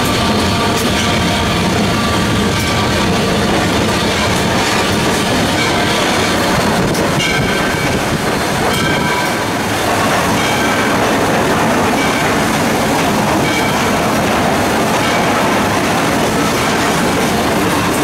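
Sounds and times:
steam locomotive rumble and rattle: 0.0 - 18.0.

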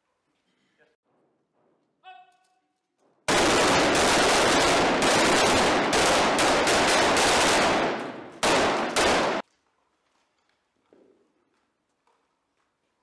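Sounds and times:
rapid overlapping gunfire: 3.3 - 9.4.

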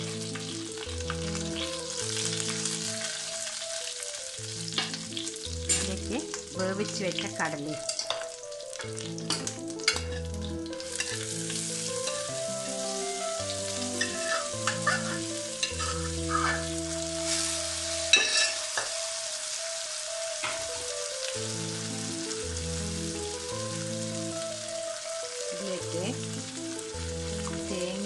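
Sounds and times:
chickpeas sizzling in hot oil: 0.0 - 28.0
spoon scraping and knocking on pan: 11.0 - 12.2, 14.0 - 17.4, 18.1 - 19.0.

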